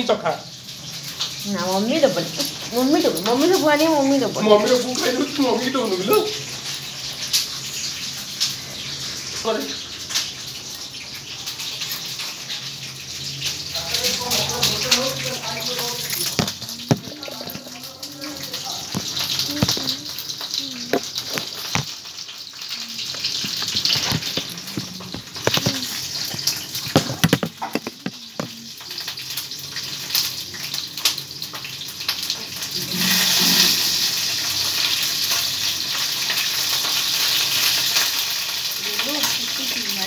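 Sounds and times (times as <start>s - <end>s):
food sizzling in hot oil: 0.0s - 40.0s
utensil clinking on metal wok: 16.0s - 17.9s.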